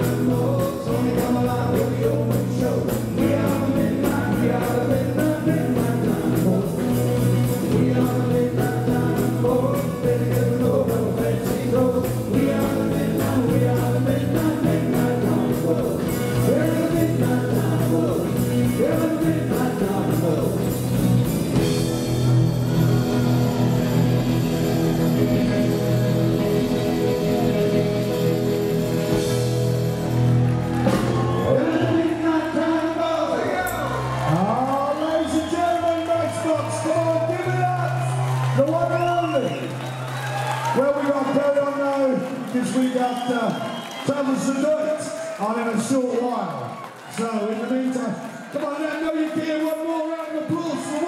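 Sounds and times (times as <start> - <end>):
men singing together: 0.0 - 20.9, 22.6 - 28.4
drum kit: 0.0 - 32.2
electric guitars: 0.0 - 41.4.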